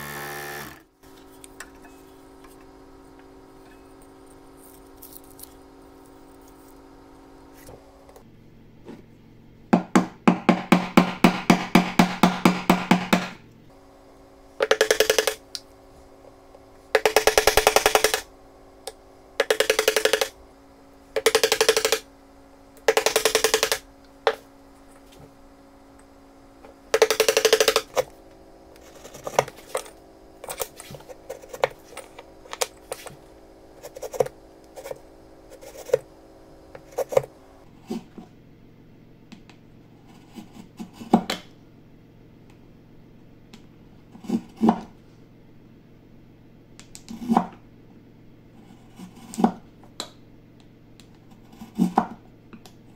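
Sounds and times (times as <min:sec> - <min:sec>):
mallet striking chisel: 0:09.8 - 0:13.4.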